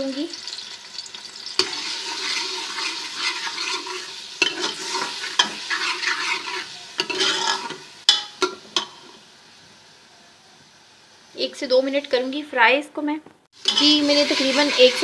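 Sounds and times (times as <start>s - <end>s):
paste sizzling in hot fat: 0.0s - 10.0s, 13.5s - 15.0s
spoon knocking against pot: 8.1s - 8.6s.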